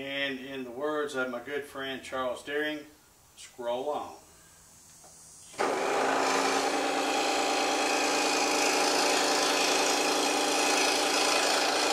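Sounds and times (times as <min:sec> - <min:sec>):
scroll saw cutting wood: 0:05.5 - 0:11.9.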